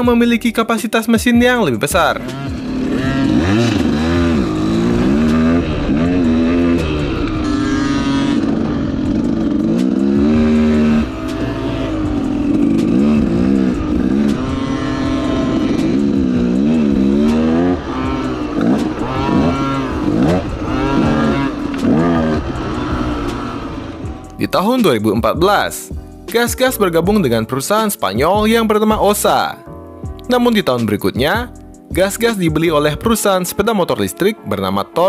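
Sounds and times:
dirt bike engine revving: 0:01.9 - 0:27.4.

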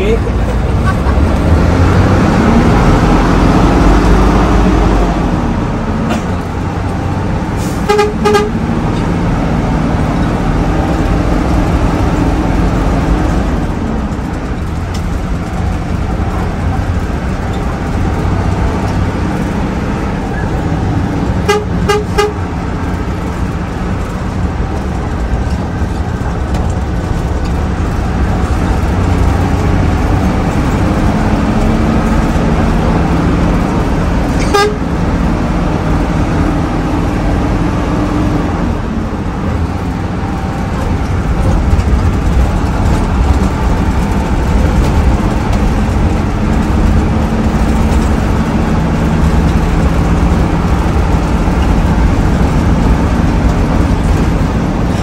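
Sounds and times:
bus diesel engine revving: 0:00.0 - 0:55.0
road rumble: 0:00.0 - 0:55.0
horn short toots: 0:07.7 - 0:08.6, 0:21.4 - 0:22.4, 0:34.4 - 0:34.8.

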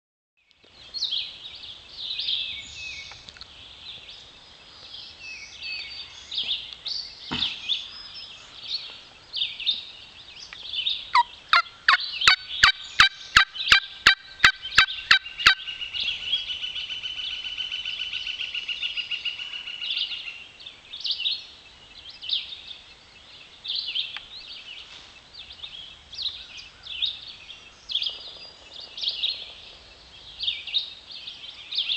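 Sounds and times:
sharp turkey call yelps: 0:11.1 - 0:15.7
turkey call clucks and chirps: 0:11.1 - 0:15.7.

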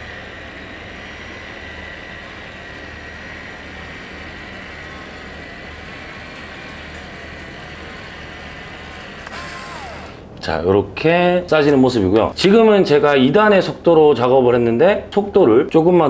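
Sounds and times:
cordless caulking gun motor whine: 0:00.0 - 0:10.3.

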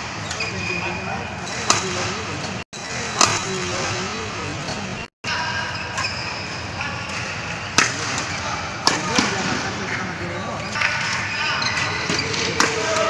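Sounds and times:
sports hall noise: 0:00.0 - 0:13.0
rackets hitting shuttlecock: 0:01.6 - 0:02.2, 0:03.1 - 0:04.9, 0:06.8 - 0:10.0, 0:10.7 - 0:13.0.

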